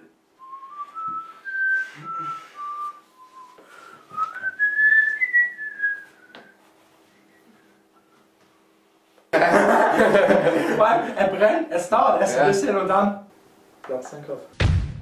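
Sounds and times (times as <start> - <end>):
person whistling a tune: 0.4 - 8.3.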